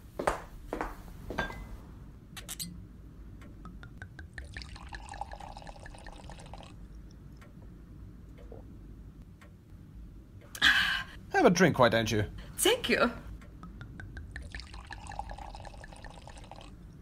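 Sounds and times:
glass clink: 1.4 - 1.8
drink poured into a glass: 4.4 - 6.8, 14.4 - 16.8.

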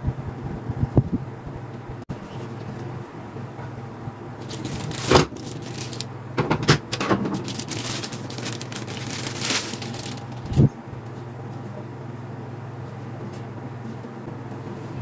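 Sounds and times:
plastic bag crinkling: 4.4 - 6.1, 7.1 - 10.7.

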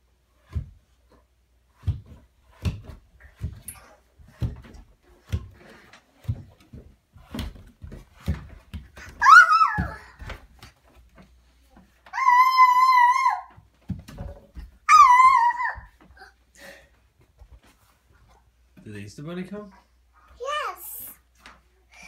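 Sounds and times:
child bumping down wooden stairs: 0.4 - 1.1, 1.7 - 16.4
child squealing: 9.2 - 10.2, 12.1 - 13.5, 14.9 - 16.3.

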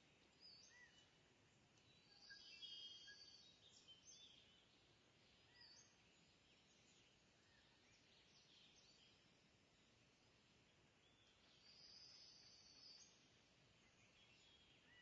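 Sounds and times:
faint high bird chirps: 0.4 - 1.2, 1.8 - 4.6, 5.4 - 9.2, 11.1 - 15.0.

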